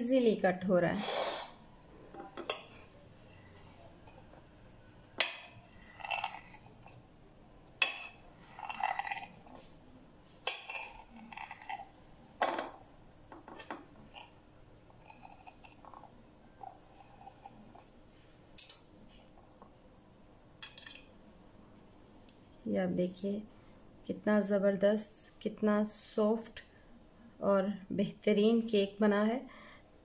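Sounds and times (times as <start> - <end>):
blade scraping through cake: 5.7 - 7.0, 8.4 - 9.4, 15.0 - 15.8, 16.7 - 17.8.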